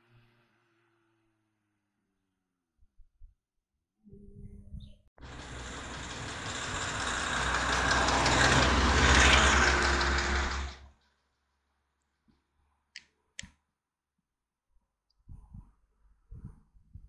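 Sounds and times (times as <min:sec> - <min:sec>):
race car passing at speed: 0:05.2 - 0:10.9.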